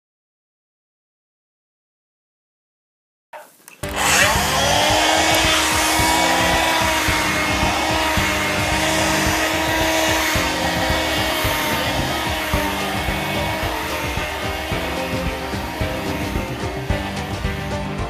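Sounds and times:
background music: 3.8s - 18.0s
vacuum cleaner motor whine: 3.8s - 18.0s.

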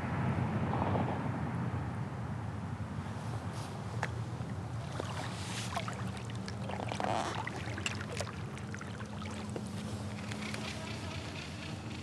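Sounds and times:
water drips and splashes: 4.0s - 10.5s.

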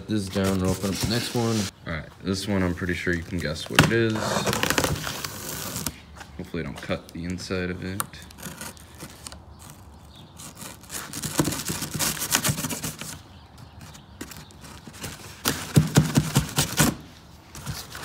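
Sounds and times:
serrated knife sawing cardboard: 8.3s - 9.8s.

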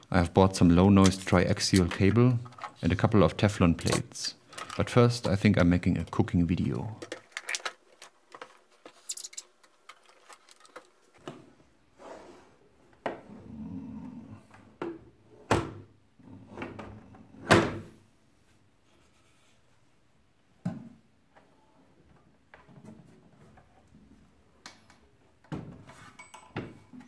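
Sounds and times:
clicks and knocks of instrument cases: 6.9s - 11.5s.

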